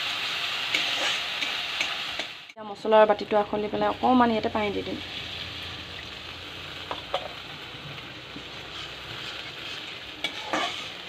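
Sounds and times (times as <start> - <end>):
spice paste sizzling in oil: 0.0 - 11.0
water pouring: 5.2 - 6.7.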